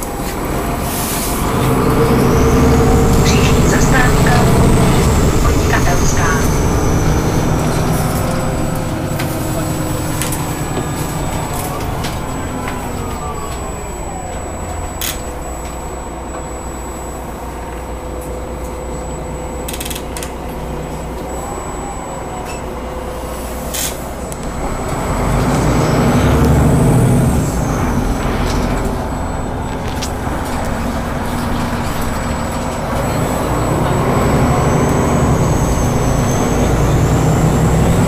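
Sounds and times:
bus engine running: 0:00.0 - 0:38.0
whine gliding down in pitch: 0:24.2 - 0:38.0.

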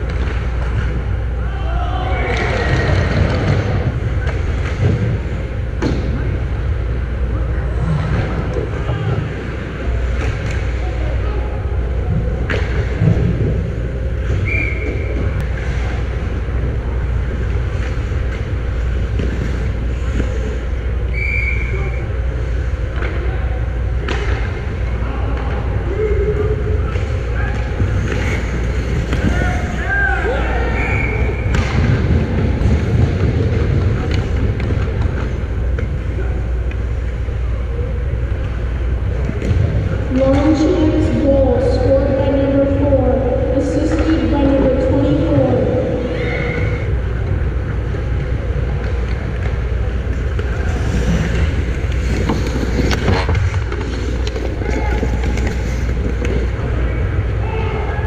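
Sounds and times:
steady low rumble: 0:00.0 - 0:58.0
skates and sticks on ice: 0:26.9 - 0:37.2, 0:47.3 - 0:57.6
sticks and skates ticking on ice: 0:48.7 - 0:56.7.

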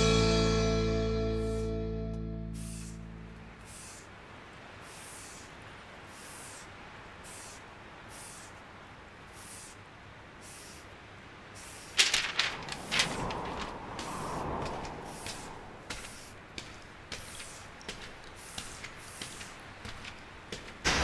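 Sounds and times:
faint hiss: 0:02.4 - 0:21.0
sharp loud cracks: 0:20.7 - 0:21.0.

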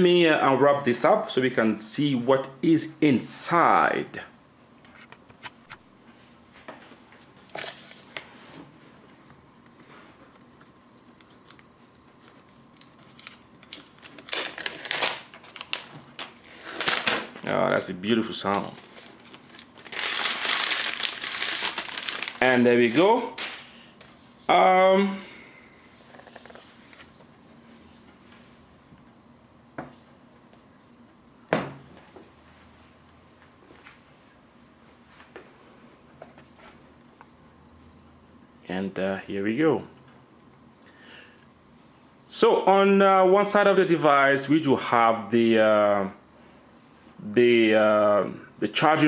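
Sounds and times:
plastic wrap crinkling and rustling: 0:12.2 - 0:23.6.

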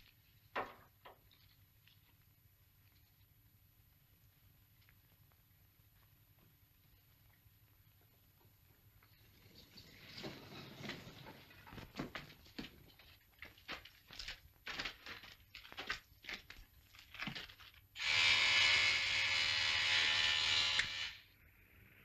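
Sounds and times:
footsteps: 0:09.9 - 0:17.6
loud electric buzzer: 0:18.0 - 0:21.3.

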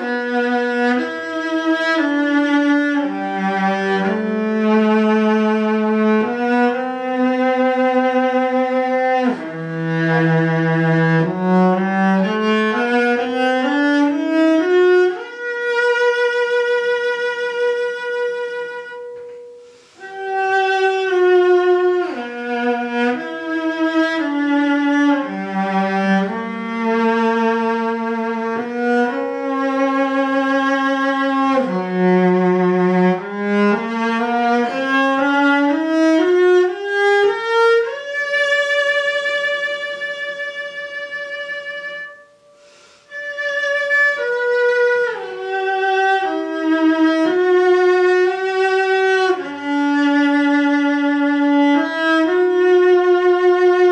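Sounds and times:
solo cello melody: 0:00.0 - 0:53.9.

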